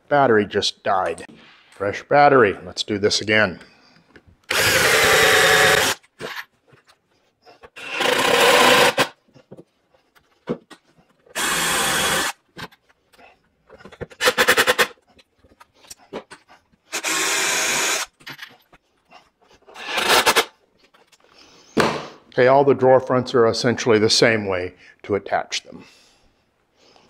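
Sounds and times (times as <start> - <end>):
cordless drill bursts: 4.5 - 6.0, 7.8 - 9.2, 11.3 - 12.4, 14.2 - 14.9, 16.9 - 18.1, 19.8 - 20.5.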